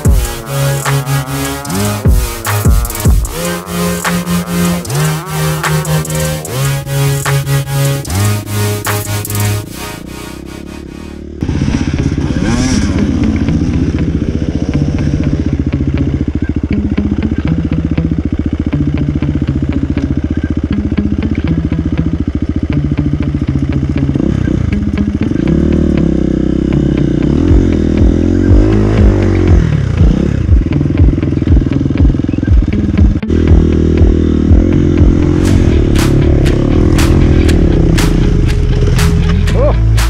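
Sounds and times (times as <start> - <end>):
background music with beat: 0.0 - 11.2, 27.4 - 40.0
dirt bike engine revving: 0.0 - 40.0.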